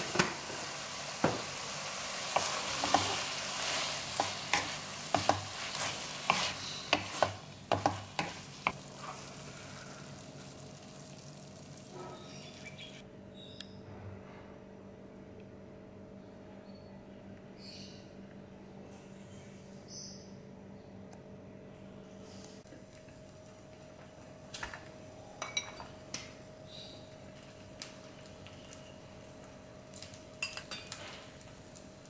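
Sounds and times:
meat sizzling in a wok: 0.0 - 11.9.

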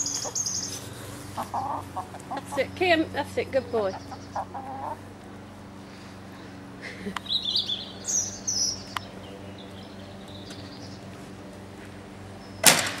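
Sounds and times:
small bird chirping: 0.0 - 3.0, 3.6 - 5.0, 7.2 - 11.1.

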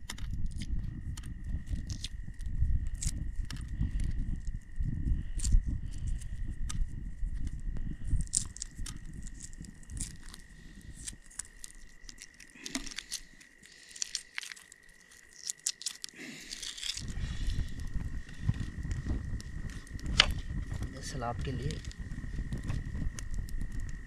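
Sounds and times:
low rumble: 0.0 - 11.8, 16.7 - 24.0
eggshells cracking and peeling: 0.0 - 24.0
wood fire crackling: 0.0 - 24.0.

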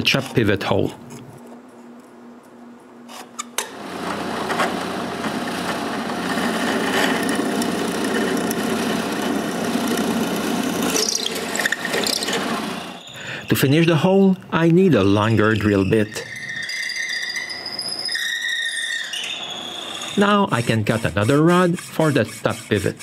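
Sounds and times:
drill press grinding into wood: 3.6 - 13.0.

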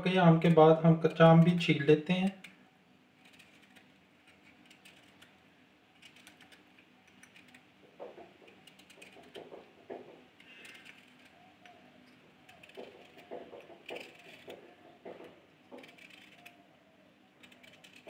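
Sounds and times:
knife scraping mango skin: 7.2 - 16.7, 17.4 - 18.0.

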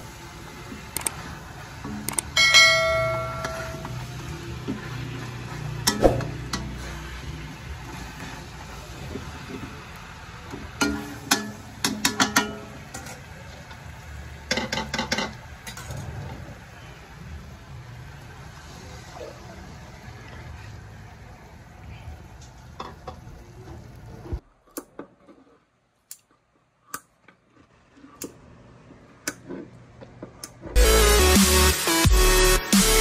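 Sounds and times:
meat sizzling in a wok: 3.8 - 15.6.

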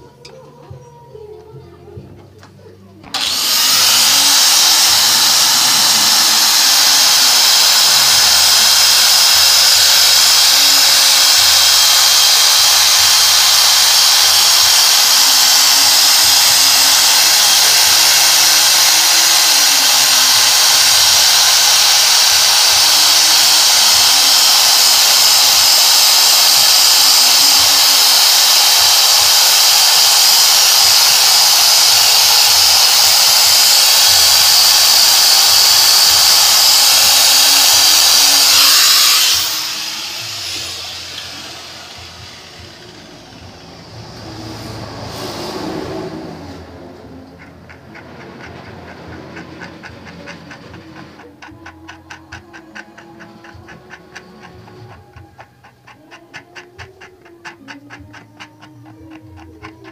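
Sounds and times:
angle grinder grinding metal: 3.0 - 45.1, 46.9 - 59.9.

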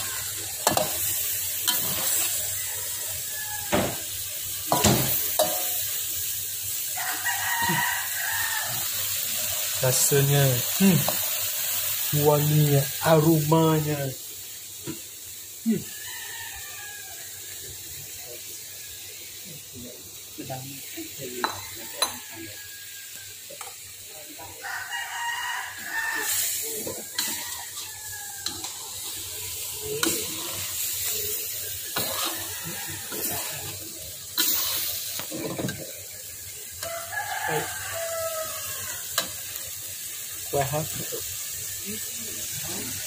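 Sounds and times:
rooster crowing: 0.0 - 5.8, 6.8 - 10.3, 15.7 - 17.9, 21.4 - 23.6, 24.3 - 34.0, 36.5 - 39.6
food sizzling: 0.0 - 43.0
metal spatula scraping a wok: 0.2 - 2.6, 4.7 - 6.0, 26.1 - 35.9.

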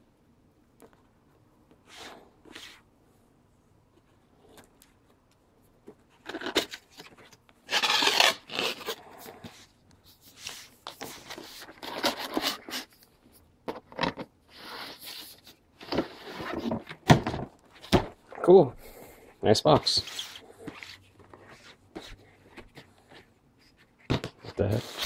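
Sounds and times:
cardboard scraping and rubbing: 6.1 - 13.0, 14.2 - 17.1, 19.8 - 25.0.

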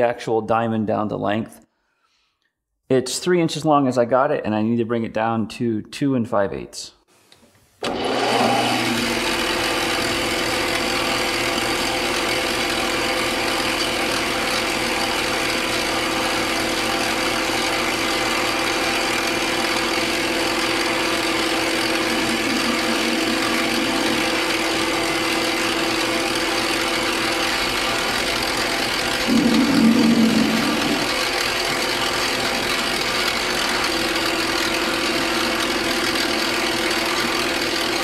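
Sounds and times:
metal lathe whine: 16.4 - 26.7, 29.2 - 31.8.

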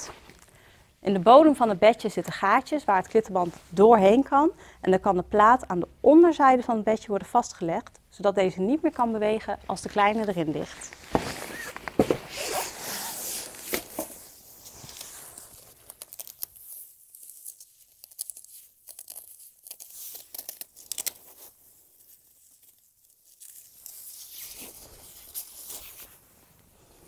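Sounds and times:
fabric rustling: 10.0 - 27.0
velcro straps ripping: 11.4 - 26.2.

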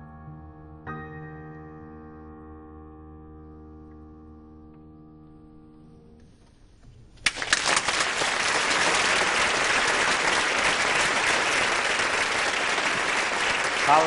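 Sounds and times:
audience applauding: 7.2 - 14.0.

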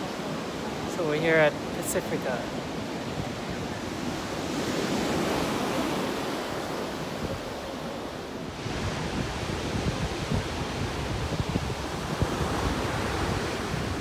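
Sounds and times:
surf breaking on beach: 0.0 - 14.0
wind buffeting microphone: 2.9 - 14.0.

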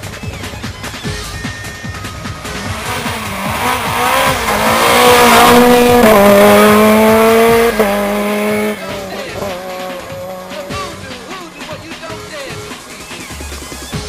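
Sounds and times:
electronic music with steady beat: 0.0 - 14.0
car engine accelerating: 1.5 - 11.6.

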